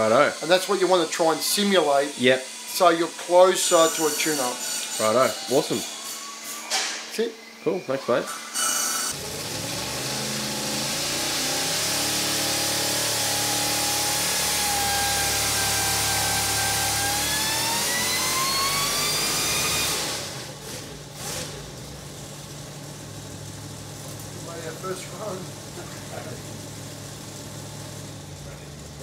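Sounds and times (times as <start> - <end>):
engine revving at full throttle: 9.1 - 21.8.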